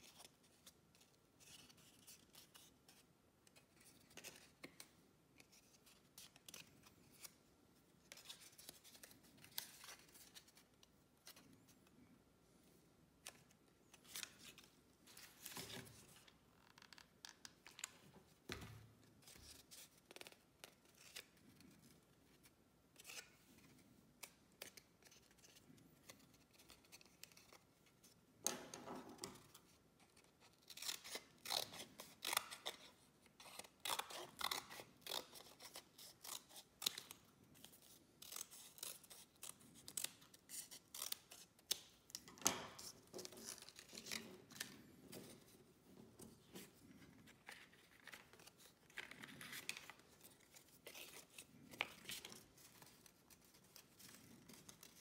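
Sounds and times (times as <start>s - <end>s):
card rustling and crinkling: 35.3s - 55.0s.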